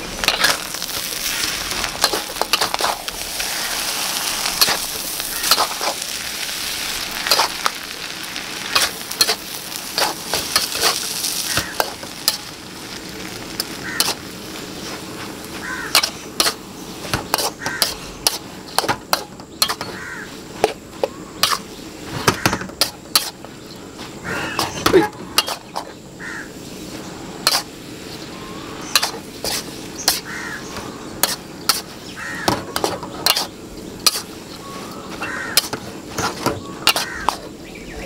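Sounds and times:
metal spatula scraping a wok: 0.1 - 6.0, 8.7 - 12.5, 22.8 - 23.4, 24.6 - 25.9, 26.8 - 27.7, 28.9 - 30.3, 32.8 - 37.5
bird calls: 4.6 - 6.0, 13.7 - 14.2, 19.5 - 22.7, 28.1 - 38.0.

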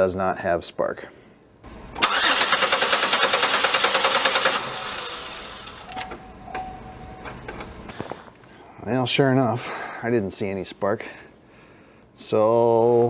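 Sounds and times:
car engine cranking on starter: 1.9 - 6.2.

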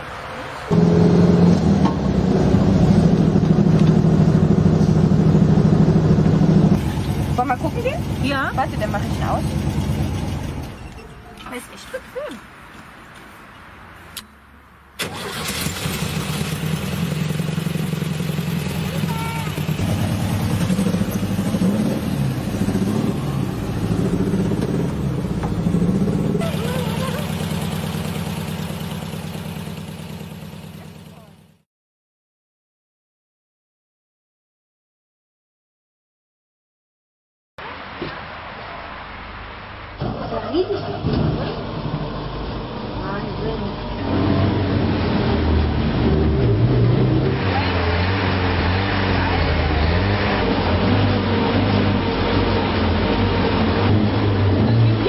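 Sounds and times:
engine revving: 0.7 - 10.8, 15.0 - 31.4, 41.7 - 55.0.

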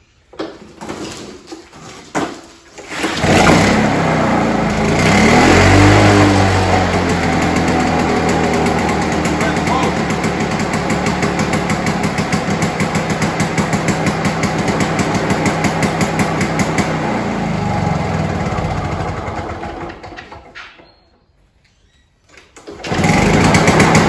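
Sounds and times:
lawnmower engine running: 2.8 - 20.5, 22.6 - 24.0.

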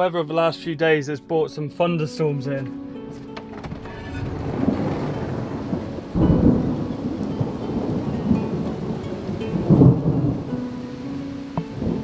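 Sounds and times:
steady rain: 3.5 - 12.0
thunder rumbling: 3.5 - 12.0.

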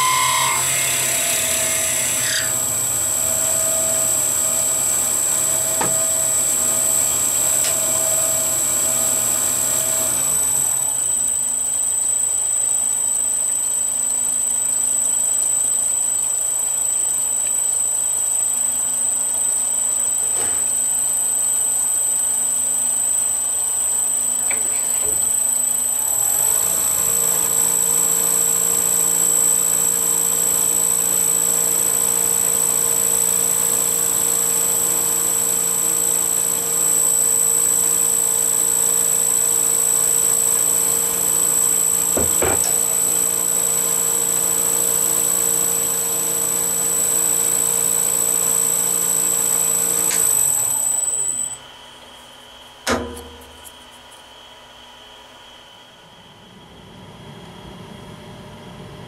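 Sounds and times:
wood lathe whining: 0.0 - 11.2, 24.4 - 51.6.

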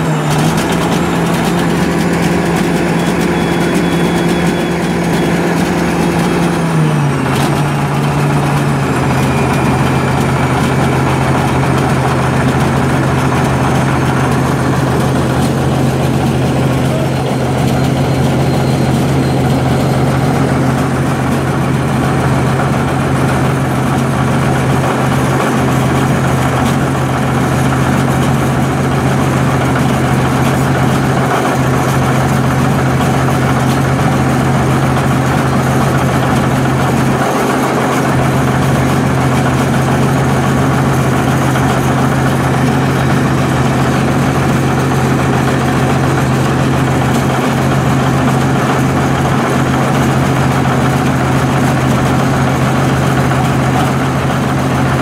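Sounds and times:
bulldozer diesel engine idling: 0.0 - 55.0.

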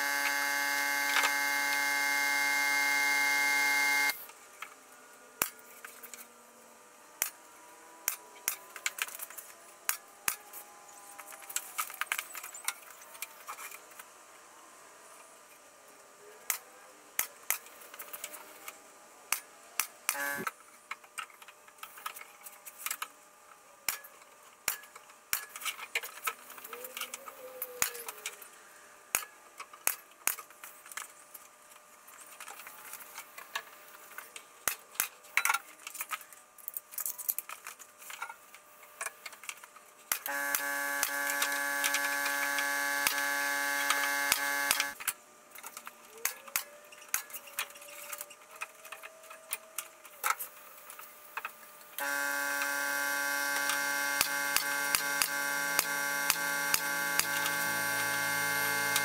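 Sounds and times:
power tool motor whining: 0.0 - 4.2, 20.1 - 20.5, 40.2 - 45.0, 52.0 - 59.0.

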